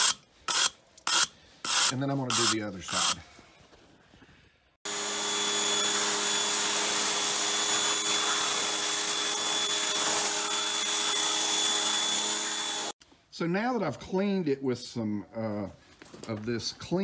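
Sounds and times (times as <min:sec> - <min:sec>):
pressure washer motor hum: 0:04.9 - 0:12.9.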